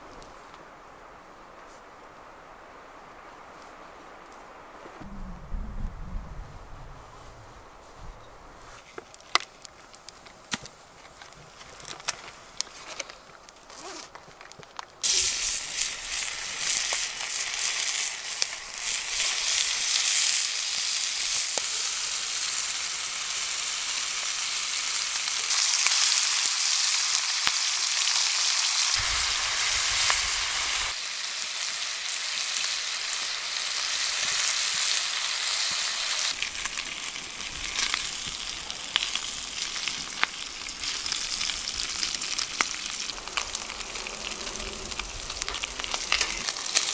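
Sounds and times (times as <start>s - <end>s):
bacon sizzling in frying pan: 15.0s - 46.9s.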